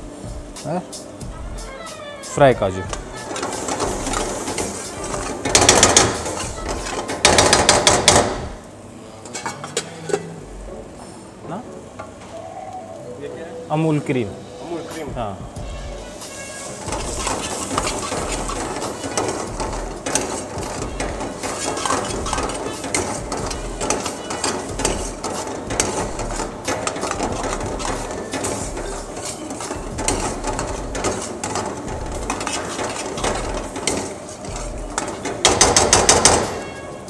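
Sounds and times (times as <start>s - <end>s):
steel ladle scraping a pan: 3.0s - 7.2s, 15.7s - 37.0s.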